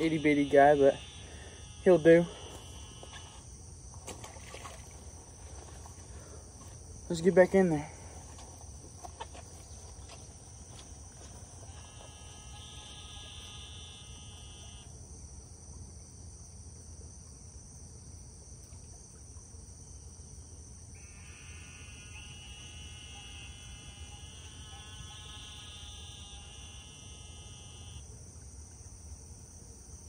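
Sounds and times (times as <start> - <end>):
long pitched drone: 0.0 - 3.4
crickets and insects chirring: 0.0 - 30.0.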